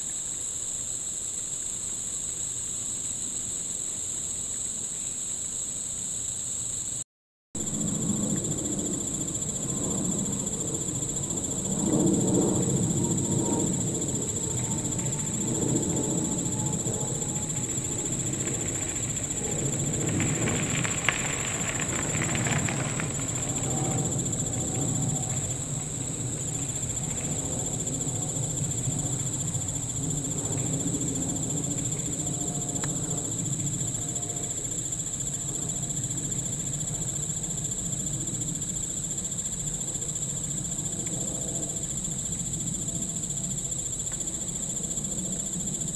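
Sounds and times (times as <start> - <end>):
high-pitched insect chorus: 0.0 - 7.0, 7.6 - 45.9
low rumble: 7.6 - 34.2.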